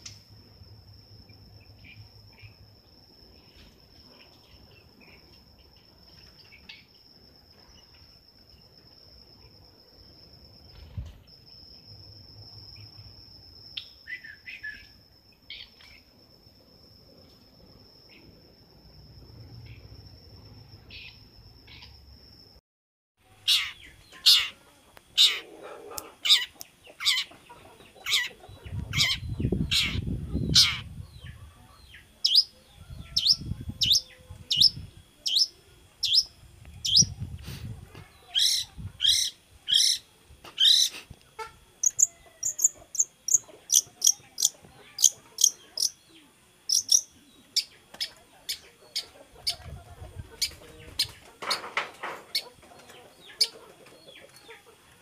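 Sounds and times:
songbird calling: 0:13.7 - 0:16.1, 0:23.2 - 0:37.3, 0:38.1 - 0:51.3.

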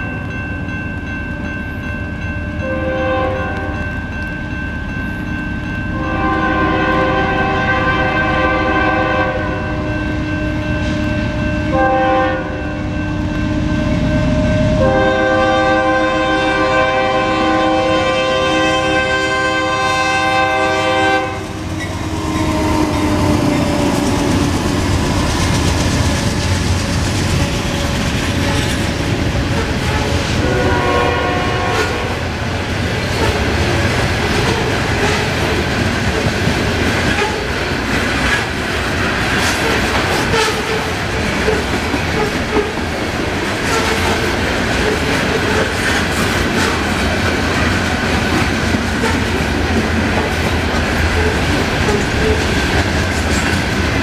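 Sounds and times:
train air horn blasts: 0:02.6 - 0:03.8, 0:06.0 - 0:25.4, 0:29.5 - 0:32.3, 0:34.3 - 0:35.5, 0:37.1 - 0:37.5, 0:39.6 - 0:41.6, 0:43.6 - 0:44.2
freight cars rolling on rails: 0:19.0 - 0:54.0
locomotive engine and wheel noise: 0:21.0 - 0:54.0.

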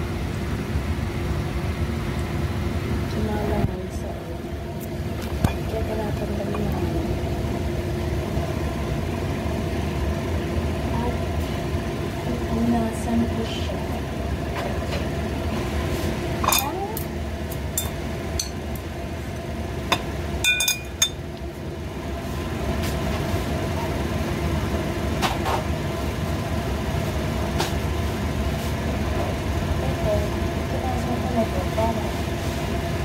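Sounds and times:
steady mechanical hum: 0:00.0 - 0:33.0
metal pots and utensils clinking: 0:16.4 - 0:16.8, 0:17.7 - 0:18.6, 0:20.4 - 0:21.2.

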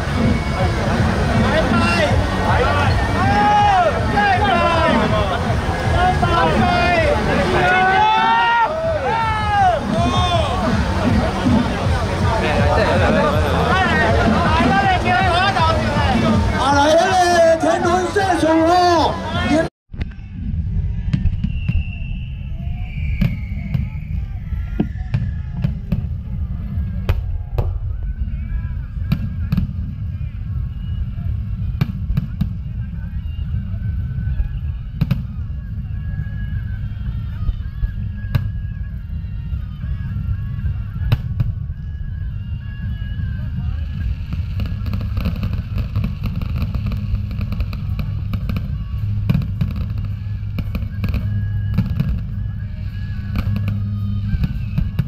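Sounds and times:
fireworks bursting and crackling: 0:00.0 - 0:17.5, 0:20.0 - 0:35.7, 0:37.3 - 0:55.0
music playing: 0:00.0 - 0:21.2, 0:22.4 - 0:55.0
low rumble: 0:19.9 - 0:55.0
fireworks bangs: 0:21.0 - 0:33.1, 0:43.2 - 0:55.0.

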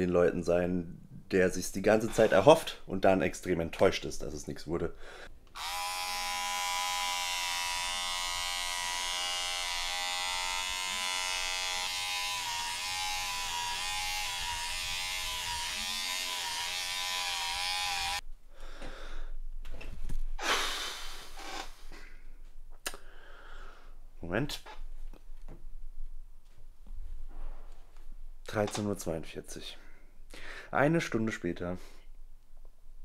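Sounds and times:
electric shaver humming: 0:05.5 - 0:18.2.

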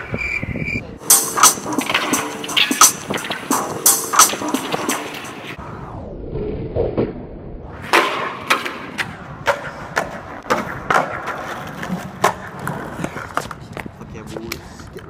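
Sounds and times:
skateboard landing clack: 0:07.8 - 0:13.6
sharp skateboard clacks: 0:07.8 - 0:14.7
skateboard wheels rumbling on concrete: 0:07.8 - 0:15.0.

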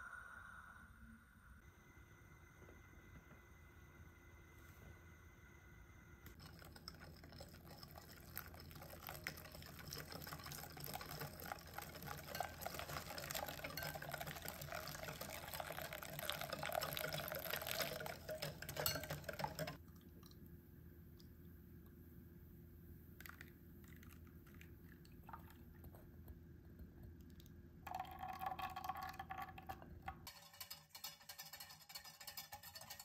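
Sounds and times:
tap water filling a container: 0:06.4 - 0:19.8.

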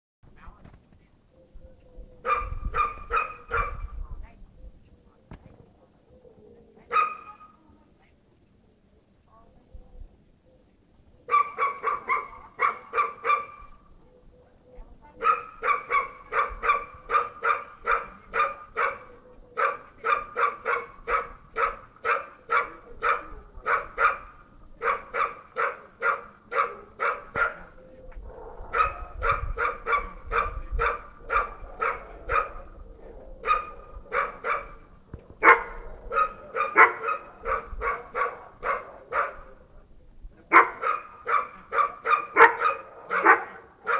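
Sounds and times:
dog barking: 0:02.2 - 0:04.0, 0:06.9 - 0:07.6, 0:11.3 - 0:13.8, 0:15.2 - 0:32.8, 0:33.4 - 0:39.6, 0:40.5 - 0:43.9.

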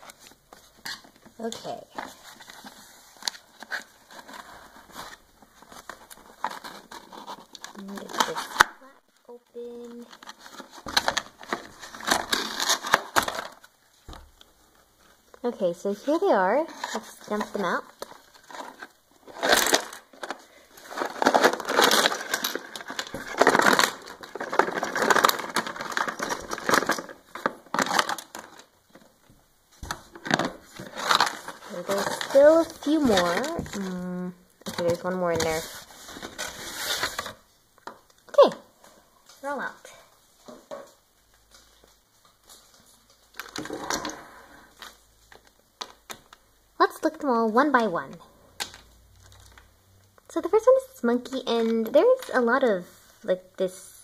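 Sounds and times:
plastic figures clattering: 0:09.9 - 0:13.7, 0:16.1 - 0:29.2, 0:29.8 - 0:33.9
cardboard scraping and rustling: 0:29.9 - 0:33.9, 0:34.7 - 0:37.4.

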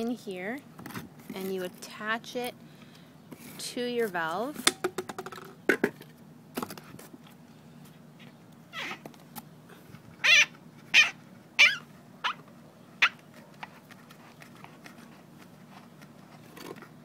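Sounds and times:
plastic bottle squeaking on rubber: 0:08.7 - 0:09.1, 0:10.2 - 0:17.0.

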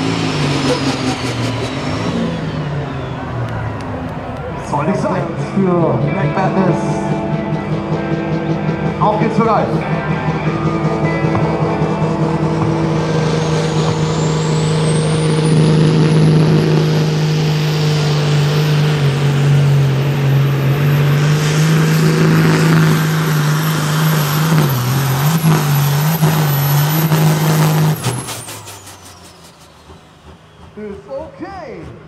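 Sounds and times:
diesel engine running under load: 0:00.0 - 0:32.0
high turbo whistle: 0:09.8 - 0:18.8, 0:21.2 - 0:31.1.

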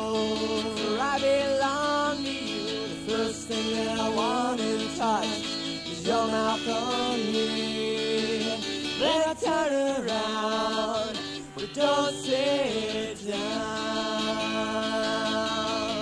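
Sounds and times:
person singing acoustic song: 0:00.0 - 0:16.0.

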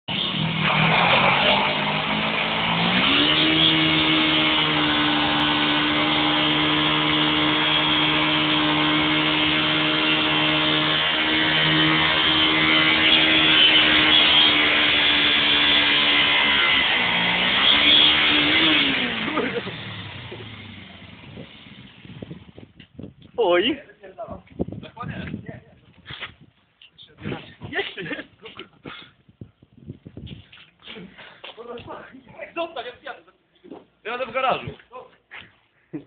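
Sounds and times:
motorcycle engine at high revs: 0:00.1 - 0:23.0.

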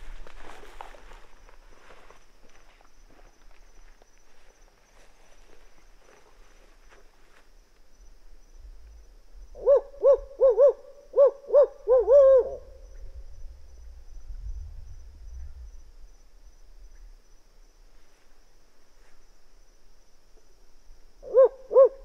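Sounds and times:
owl hooting: 0:09.5 - 0:13.2, 0:21.2 - 0:22.0.

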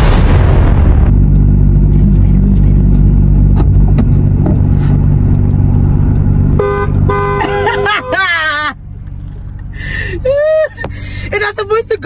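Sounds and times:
car engine running: 0:00.0 - 0:12.0
car horn blaring: 0:06.5 - 0:08.6.

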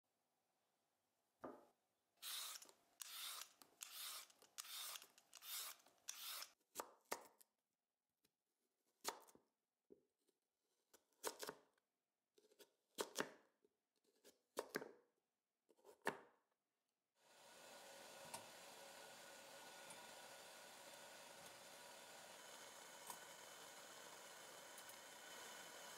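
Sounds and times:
knife scraping strokes: 0:02.2 - 0:06.6
steady hiss from pot: 0:17.2 - 0:25.9.

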